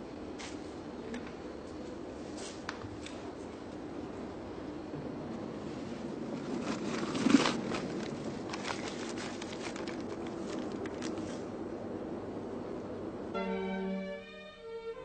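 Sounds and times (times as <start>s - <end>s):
paper crinkling: 6.4s - 11.5s.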